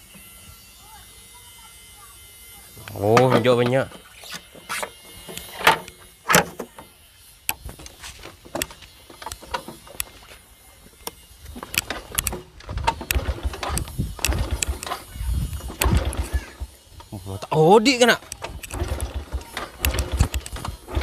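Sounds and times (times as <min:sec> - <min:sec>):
motorcycle engine cranking thuds: 0:03.1 - 0:03.8, 0:04.6 - 0:06.8, 0:07.6 - 0:10.2, 0:11.5 - 0:17.1, 0:18.2 - 0:21.0.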